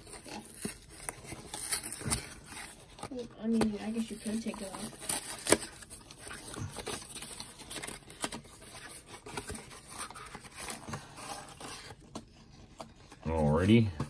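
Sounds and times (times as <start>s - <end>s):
cardboard rustling and scraping: 0.0s - 13.9s.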